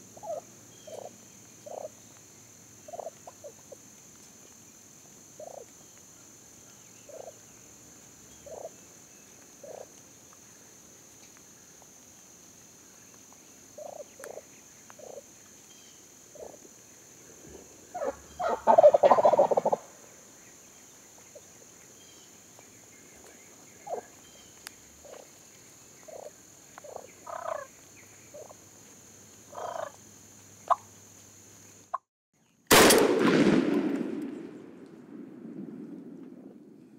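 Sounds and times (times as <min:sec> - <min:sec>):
short turkey calls: 0:00.2 - 0:01.1, 0:02.9 - 0:03.7, 0:17.9 - 0:19.9, 0:26.1 - 0:27.7, 0:29.5 - 0:30.0
turkey gobbling: 0:01.7 - 0:01.9, 0:17.9 - 0:19.9, 0:26.1 - 0:26.3, 0:26.9 - 0:27.7, 0:29.5 - 0:29.9.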